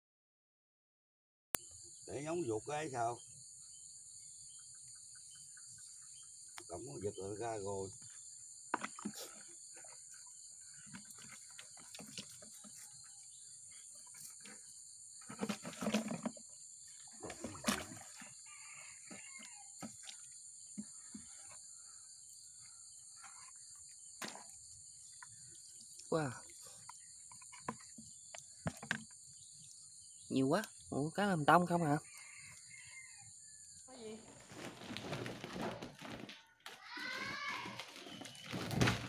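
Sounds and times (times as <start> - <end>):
insects chorus: 1.6 - 36.2, 37.0 - 39.0
water and fish splashing in bucket: 8.8 - 13.0, 15.2 - 21.3.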